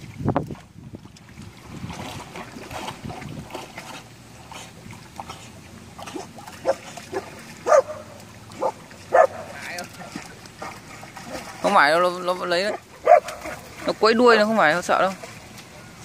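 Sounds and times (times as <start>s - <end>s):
wind on microphone: 0.0s - 4.0s
water sloshing and splashing: 0.0s - 16.0s
dog barking: 6.6s - 9.5s, 13.0s - 13.6s.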